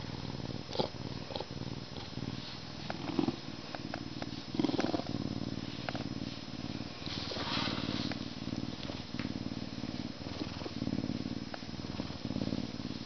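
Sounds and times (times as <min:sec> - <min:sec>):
lynx purring: 0:00.0 - 0:13.0.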